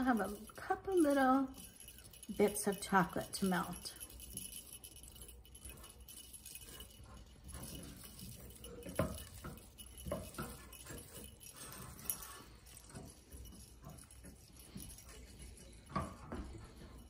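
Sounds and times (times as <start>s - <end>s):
small bells jingling: 0.0s - 17.0s
spatula stirring chocolate in pan: 0.0s - 17.0s.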